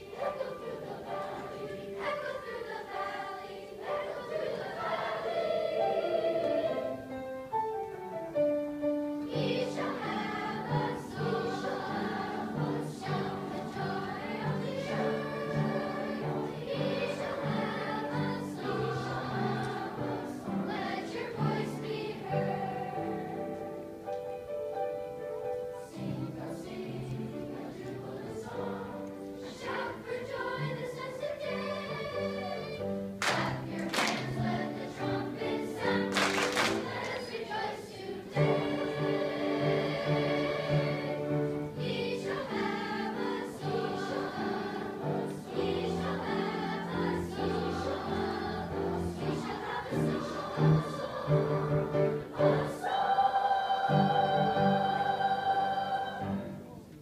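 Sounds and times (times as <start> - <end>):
children's choir singing: 0.0 - 57.0
piano accompaniment: 0.0 - 57.0.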